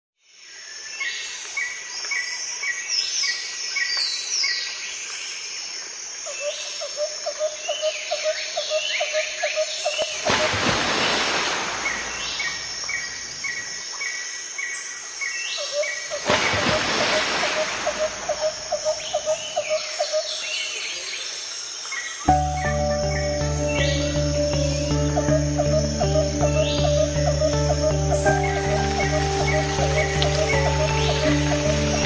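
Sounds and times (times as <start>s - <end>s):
birds chirping and whistling: 22.3s - 32.0s.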